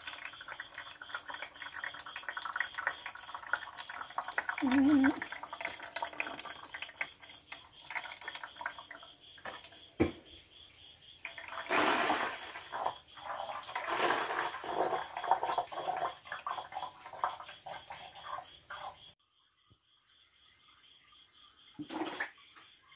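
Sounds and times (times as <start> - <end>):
liquid pouring through a funnel: 0.0 - 9.8, 11.2 - 19.2.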